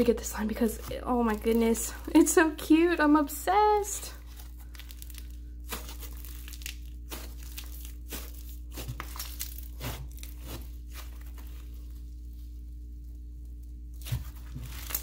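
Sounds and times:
slime crinkling and tearing: 0:04.2 - 0:15.0.

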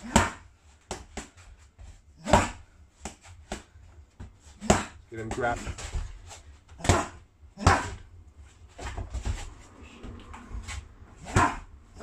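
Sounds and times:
feet shuffling on mat: 0:02.9 - 0:06.8, 0:08.4 - 0:11.6.

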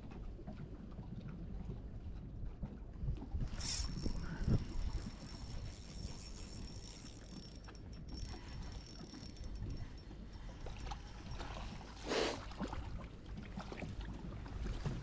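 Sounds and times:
wind and water rumble: 0:00.0 - 0:15.0
mechanical ticking: 0:03.9 - 0:11.0.

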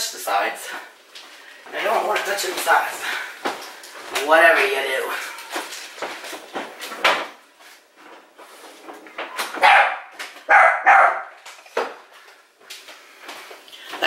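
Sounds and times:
dog barking: 0:09.6 - 0:11.4.

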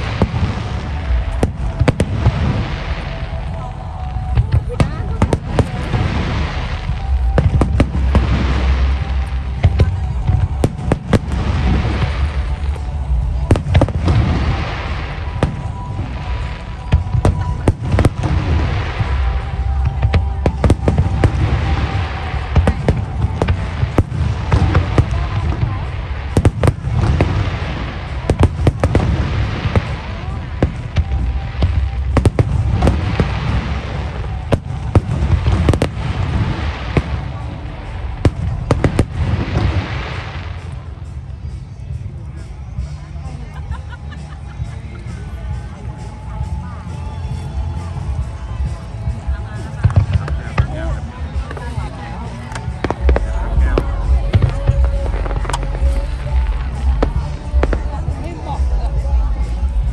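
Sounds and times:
fireworks bangs: 0:00.0 - 0:43.3, 0:44.4 - 0:59.9
low rumble: 0:45.3 - 0:59.9.

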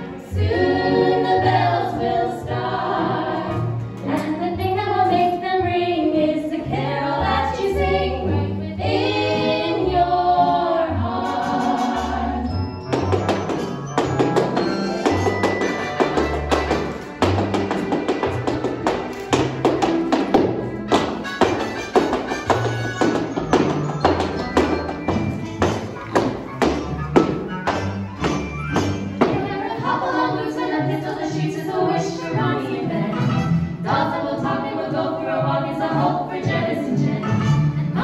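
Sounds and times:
women singing in harmony: 0:00.2 - 0:12.5, 0:29.2 - 0:38.0.

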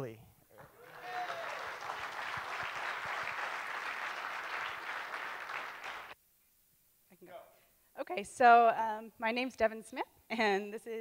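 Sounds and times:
audience applauding: 0:00.5 - 0:06.2.

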